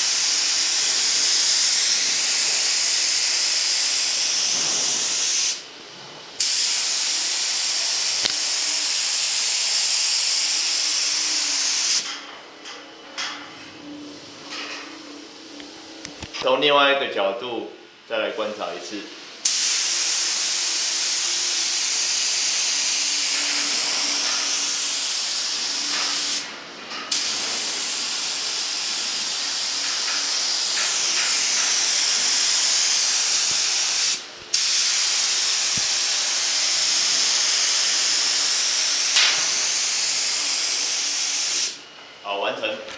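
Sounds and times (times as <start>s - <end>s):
spray gun air hissing: 0.0s - 5.6s, 6.4s - 12.1s, 19.4s - 26.5s, 27.1s - 41.8s.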